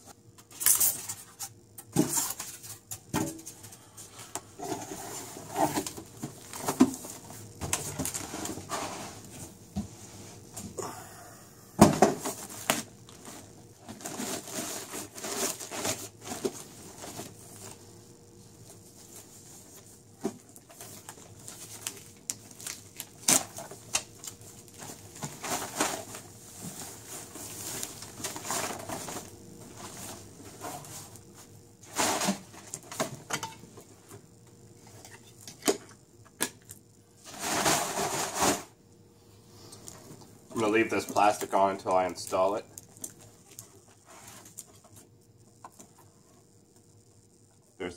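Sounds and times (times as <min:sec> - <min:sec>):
plastic bag crinkling and tearing: 0:21.0 - 0:26.1.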